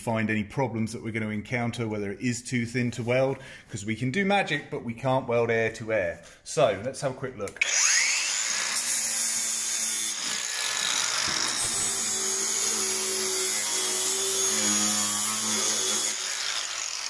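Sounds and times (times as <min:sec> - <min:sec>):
angle grinder grinding steel: 0:07.6 - 0:17.0.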